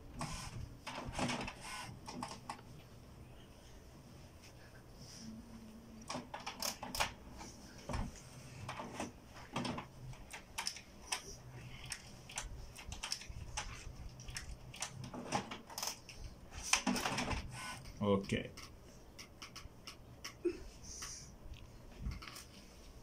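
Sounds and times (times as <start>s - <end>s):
faint motor hum: 0.0s - 23.0s
printer carriage clicks and clatters: 8.6s - 10.9s, 14.2s - 16.0s.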